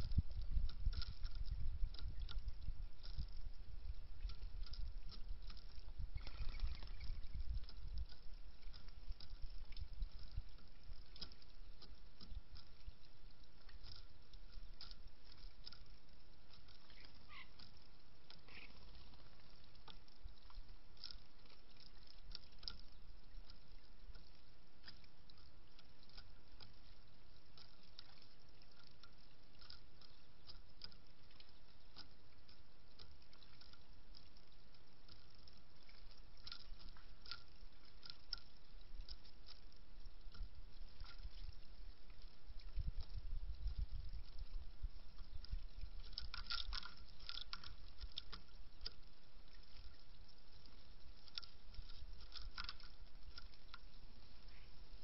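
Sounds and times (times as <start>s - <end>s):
outdoor background hiss: 0.0s - 55.0s
bird pecking seeds: 16.5s - 22.8s.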